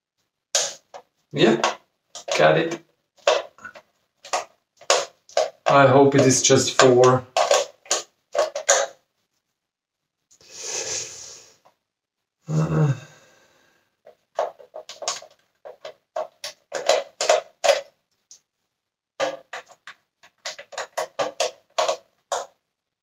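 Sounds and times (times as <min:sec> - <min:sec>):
plastic parts clicking and knocking: 0:00.6 - 0:09.0, 0:14.0 - 0:18.5, 0:19.2 - 0:22.6
breathy noise: 0:10.3 - 0:11.7, 0:12.4 - 0:14.1
short low grunt: 0:12.5 - 0:13.2.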